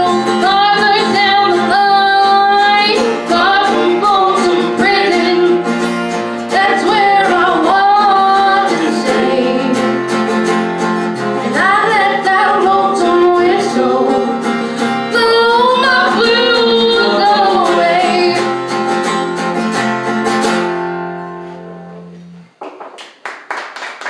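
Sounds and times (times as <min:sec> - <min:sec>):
woman singing: 0:00.0 - 0:05.8, 0:06.4 - 0:10.0, 0:11.4 - 0:18.5
strummed guitar: 0:00.0 - 0:22.5.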